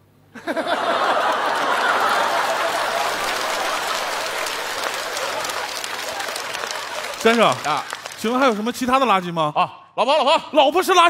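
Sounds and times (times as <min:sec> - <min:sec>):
audience laughing: 0:00.4 - 0:08.6
audience applauding: 0:00.7 - 0:09.3.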